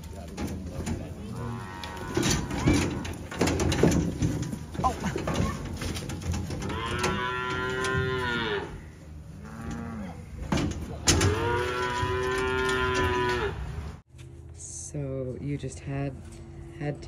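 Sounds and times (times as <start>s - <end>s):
calves bawling: 0.0s - 13.9s.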